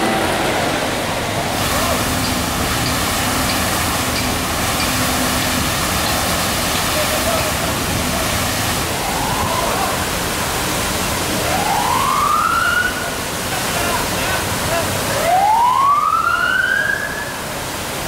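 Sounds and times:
water gushing from hydrant: 0:00.0 - 0:18.0
siren wailing: 0:09.0 - 0:10.3, 0:11.4 - 0:13.2, 0:15.2 - 0:17.3.

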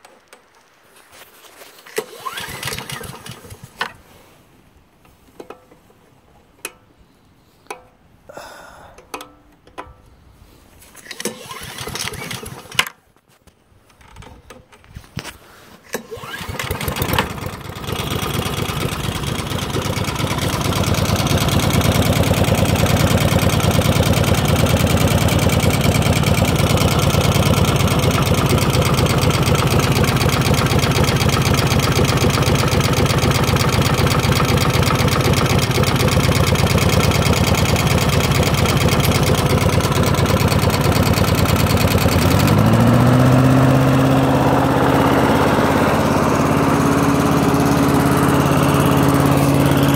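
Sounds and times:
lawnmower engine running: 0:01.9 - 0:04.0, 0:11.0 - 0:12.8, 0:15.9 - 0:49.9.

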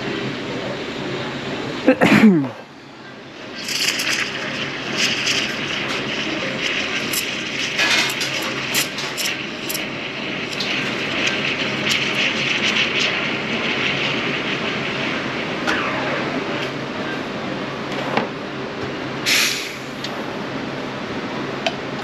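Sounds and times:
steam wand steaming milk: 0:00.0 - 0:18.1, 0:19.2 - 0:20.8
milk spitting crackles: 0:03.5 - 0:14.0.

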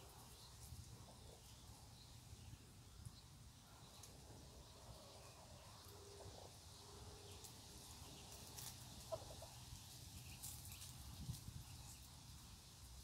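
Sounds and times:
rustling in dry litter: 0:07.4 - 0:09.1, 0:09.8 - 0:12.2.

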